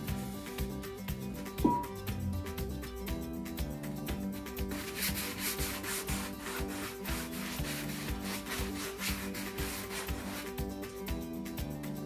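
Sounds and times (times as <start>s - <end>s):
background music with beat: 0.0s - 12.0s
wax brush scrubbing fabric: 4.7s - 10.8s.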